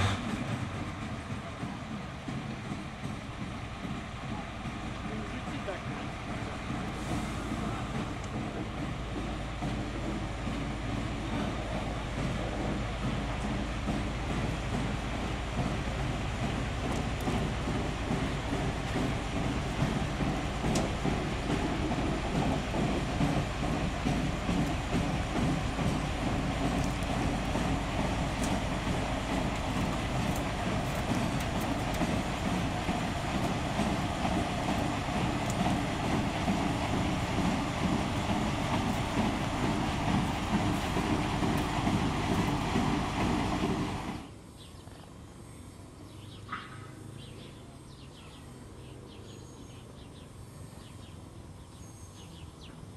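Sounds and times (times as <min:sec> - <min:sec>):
diesel locomotive engines running: 0:00.0 - 0:52.9
bird chirp: 0:46.0 - 0:52.9.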